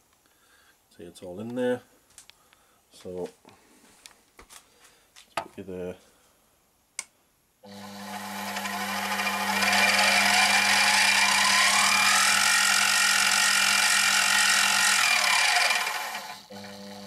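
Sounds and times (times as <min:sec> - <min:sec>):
milling machine motor whine: 0:07.7 - 0:17.0.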